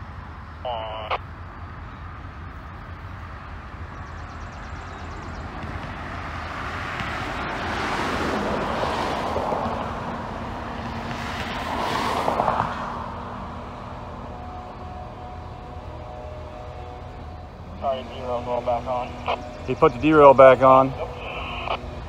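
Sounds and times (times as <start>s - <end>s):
passing vehicle noise: 0.0s - 22.0s
steady low rumble: 14.5s - 22.0s.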